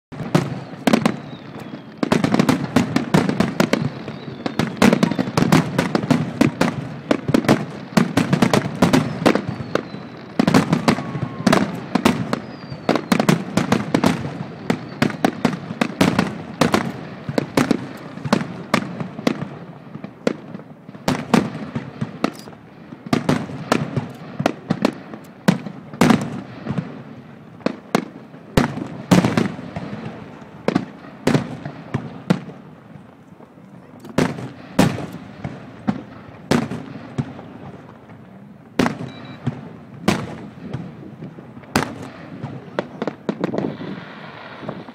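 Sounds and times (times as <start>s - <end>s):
fireworks bangs and booms: 0.1s - 44.9s
faint firework whistles: 0.2s - 26.9s, 38.8s - 44.9s.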